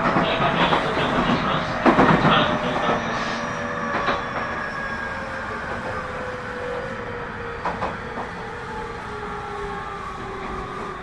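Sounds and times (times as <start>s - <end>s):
train wheels knocking: 0.0s - 3.0s, 7.6s - 8.3s.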